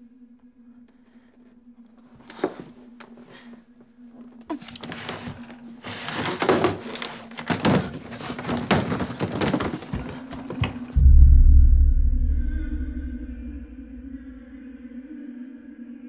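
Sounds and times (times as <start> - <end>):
scuffling and rustling: 4.4 - 11.0
steady low hum: 10.7 - 16.0.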